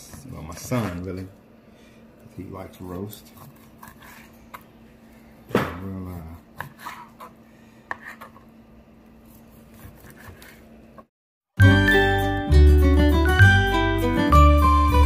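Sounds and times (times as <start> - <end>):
knife slicing fish: 3.3 - 4.4.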